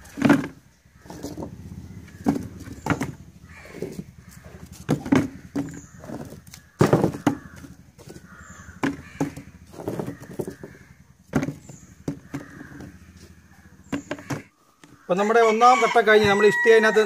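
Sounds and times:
bricks clunking in plastic bucket: 0.0 - 0.6, 4.9 - 8.2, 8.8 - 10.7.

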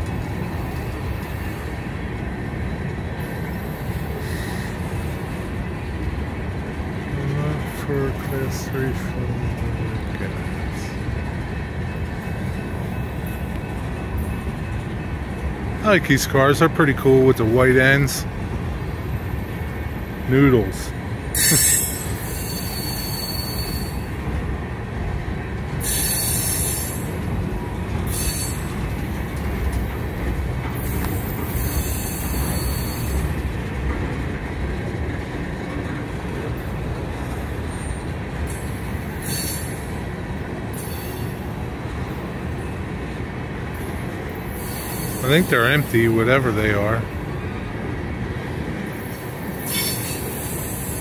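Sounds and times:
train wheels rumbling on rail: 0.0 - 51.0
high-pitched wheel squeals: 21.4 - 24.1, 25.8 - 27.1, 28.1 - 28.7, 30.8 - 33.3, 39.2 - 39.9, 49.6 - 51.0.

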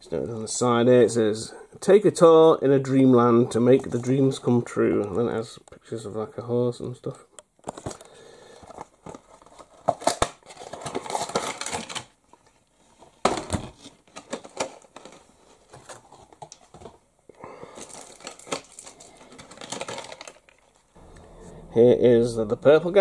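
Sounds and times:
cardboard and plastic crinkling: 7.6 - 21.0.

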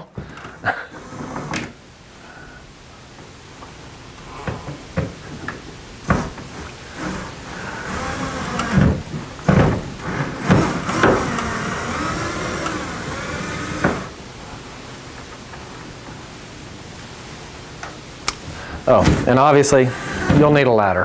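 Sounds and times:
power drill driving screws: 6.9 - 14.2, 19.8 - 20.5.

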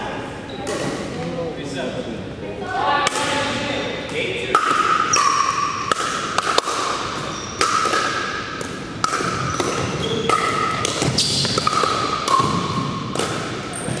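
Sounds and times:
shoe squeaks: 5.1 - 5.9, 7.2 - 8.4, 9.4 - 11.7, 13.7 - 14.0
paddles hitting plastic ball: 5.9 - 14.0.

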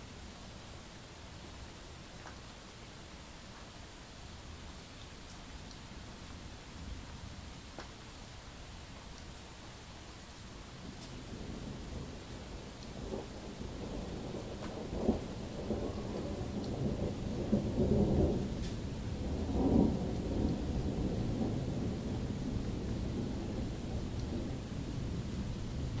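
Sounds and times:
steady rain: 0.0 - 26.0
rolling thunder: 11.2 - 26.0.

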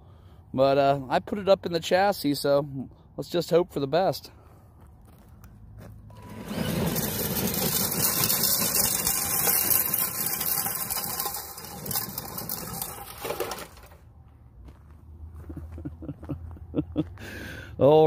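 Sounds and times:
sled scraping over gravel: 6.1 - 14.1.

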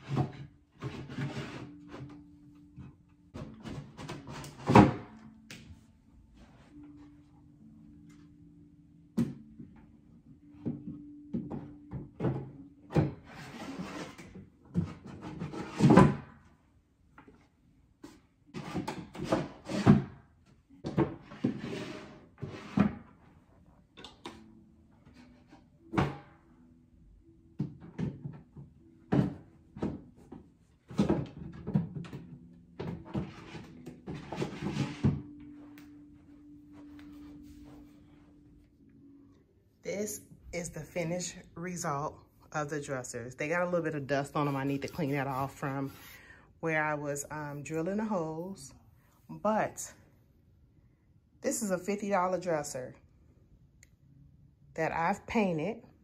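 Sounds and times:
wooden drawers scraping on runners: 0.0 - 2.0, 13.2 - 16.2, 21.2 - 23.1, 33.0 - 35.2.

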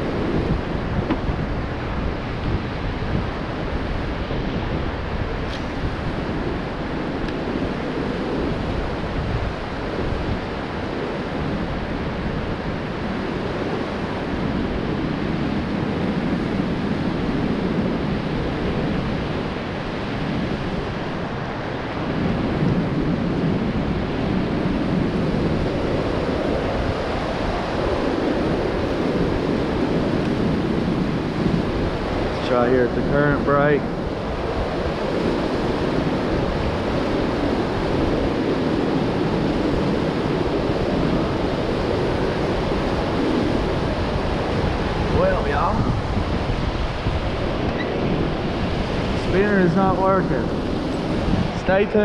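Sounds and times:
wind buffeting microphone: 0.0 - 52.0
whitewater rushing: 23.7 - 52.0.

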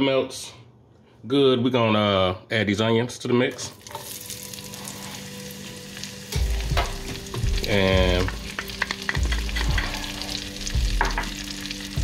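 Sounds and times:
onions sizzling in butter: 3.8 - 12.0
knocks of stirring: 6.7 - 10.2.

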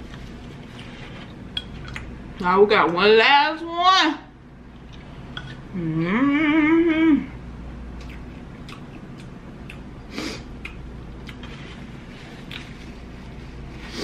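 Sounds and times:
woman humming with vibrato: 5.7 - 7.4
mouth clicks from chewing: 10.6 - 11.5.

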